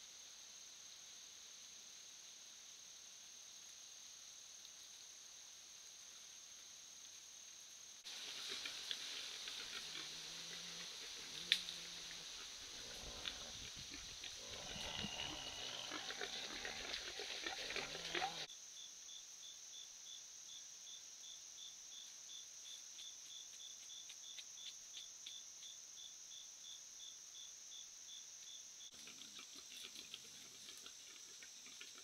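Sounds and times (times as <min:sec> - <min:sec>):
insects droning and chirping: 0:00.0 - 0:32.0.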